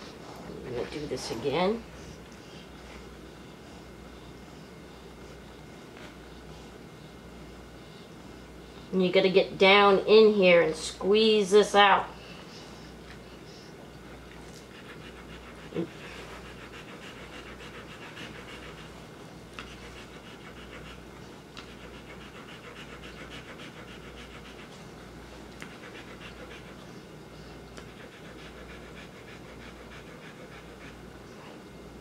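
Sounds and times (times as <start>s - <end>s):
dog panting rapidly: 14.6s - 31.6s.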